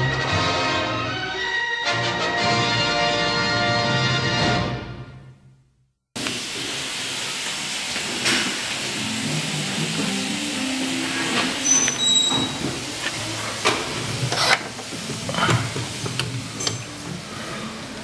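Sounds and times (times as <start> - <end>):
steady hiss: 6.2 - 18.0
door squeaks: 11.4 - 12.9.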